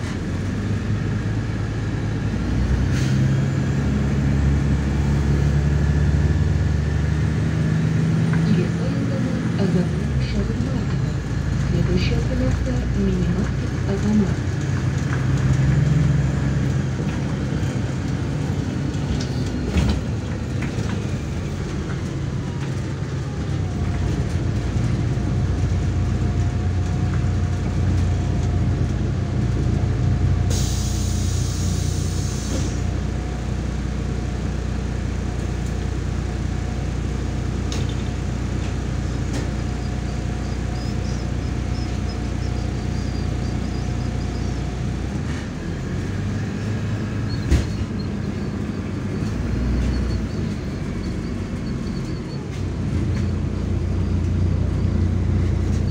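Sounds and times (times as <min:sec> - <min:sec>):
bus diesel engine running: 0:00.0 - 0:55.9
compressed air hiss: 0:30.5 - 0:32.7.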